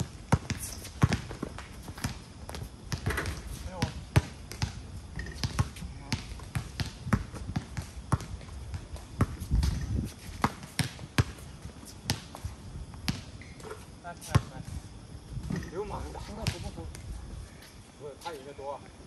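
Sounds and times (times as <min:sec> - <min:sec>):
basketball bouncing on hard court: 0:00.3 - 0:11.4, 0:12.1 - 0:12.4, 0:13.1 - 0:13.3.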